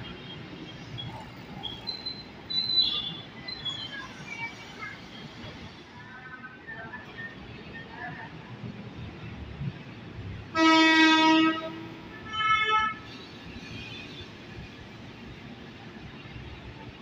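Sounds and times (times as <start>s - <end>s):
train horn blasts: 10.5s - 13.1s.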